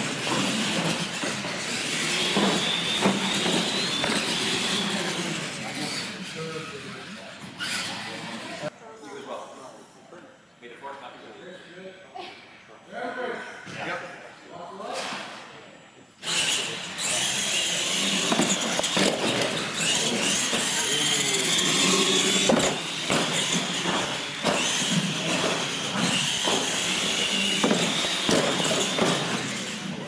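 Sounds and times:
whine of electric motors: 0.0 - 8.7, 15.0 - 30.0.

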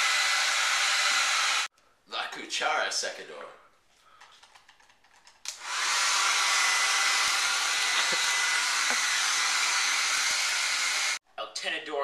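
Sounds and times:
hair dryer blowing: 0.0 - 1.7, 5.5 - 11.2.

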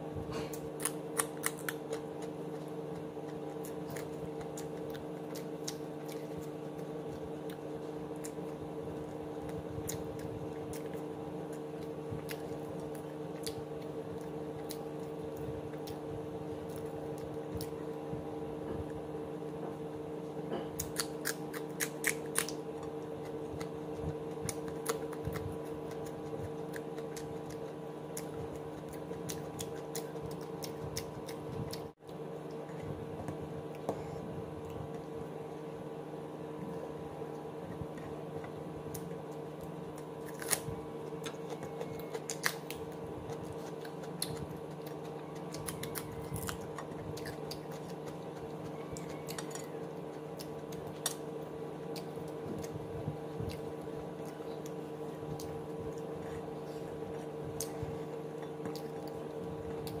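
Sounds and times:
steady low hum: 0.0 - 60.0
person eating with fingers: 36.7 - 60.0.

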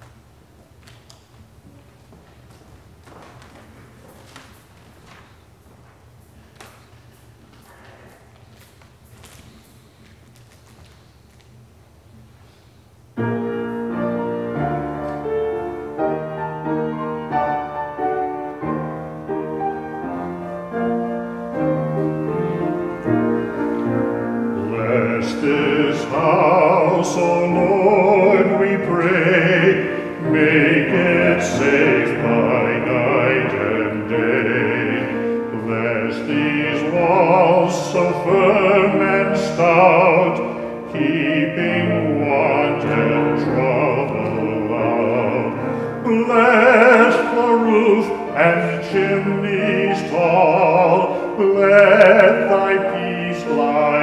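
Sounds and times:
solo piano: 13.1 - 54.0
man singing with vibrato: 22.3 - 54.0.

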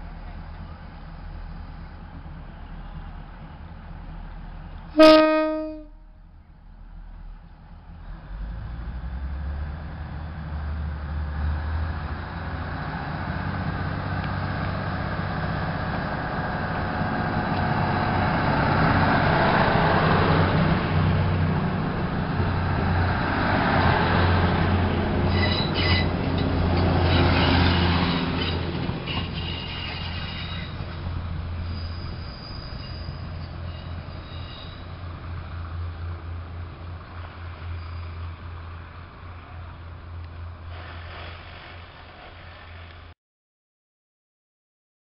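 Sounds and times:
diesel railcar engine and wheels rumbling: 0.0 - 43.1
high wheel squeals: 25.3 - 35.0, 37.5 - 38.6.

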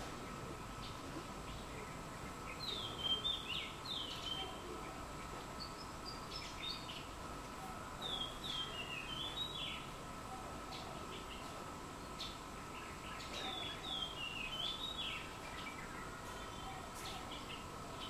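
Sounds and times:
faint steady whine: 0.0 - 18.0
songbird chirping: 0.0 - 18.0.

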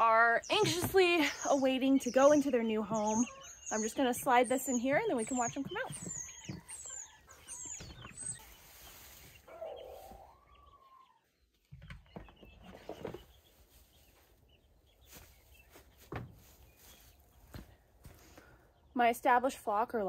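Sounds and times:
baby chicks peeping: 0.0 - 17.7
chicken calling: 0.6 - 11.4.

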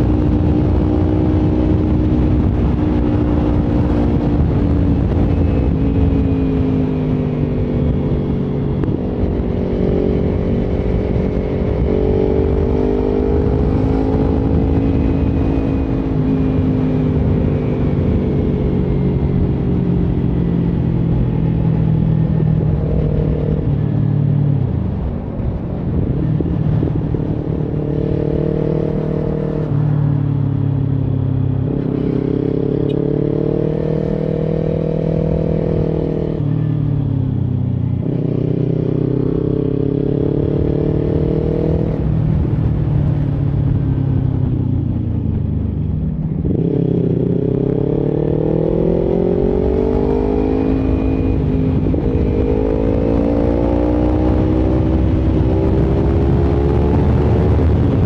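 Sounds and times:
motorcycle engine accelerating: 0.0 - 58.0
wind and road noise: 0.0 - 58.0.

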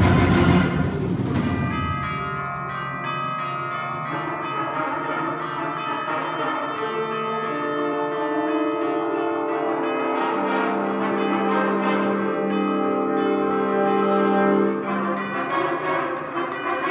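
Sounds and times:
loud timpani: 0.0 - 2.5
chimes struck: 0.0 - 16.9
concert band playing softly: 0.0 - 16.9.

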